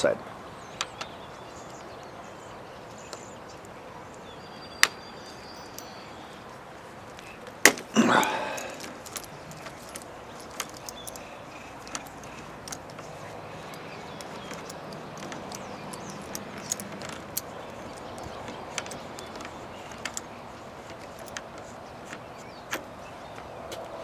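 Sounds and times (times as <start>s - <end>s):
allen key clicking on metal bolt: 8.5s - 22.9s.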